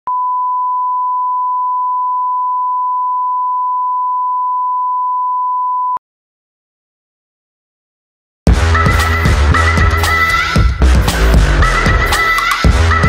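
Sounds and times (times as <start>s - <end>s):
steady test tone beep: 0.1s - 6.0s.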